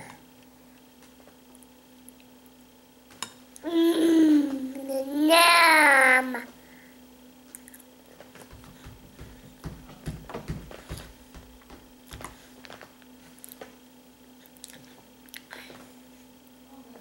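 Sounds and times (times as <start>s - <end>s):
dull thumps: 8.4s - 12.4s
child chewing: 14.3s - 15.7s.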